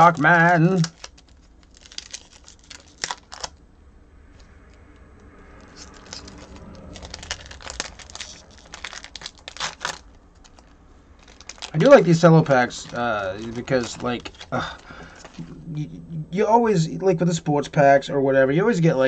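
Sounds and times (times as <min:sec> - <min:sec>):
cellophane wrapper crinkling: 0:00.0 - 0:03.6, 0:05.6 - 0:15.5.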